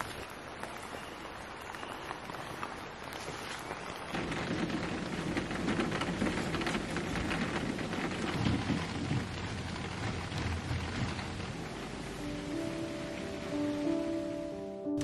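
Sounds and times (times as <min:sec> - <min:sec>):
steady rain falling: 0:00.0 - 0:15.0
low rumble of thunder: 0:04.0 - 0:14.4.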